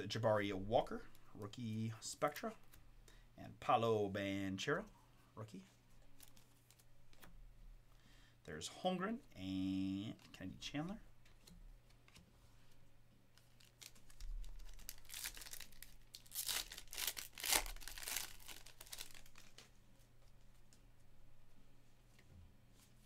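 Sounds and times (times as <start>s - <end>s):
foil wrapper tearing and crinkling: 13.5s - 19.6s.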